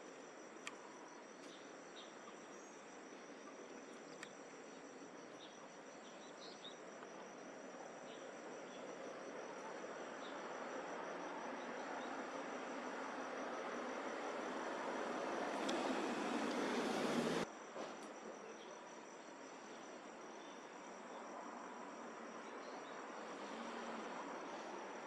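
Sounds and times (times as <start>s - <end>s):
insects trilling: 0.0s - 17.4s
faint chirps and clicks: 0.4s - 10.9s
broad rushing noise: 15.4s - 17.4s.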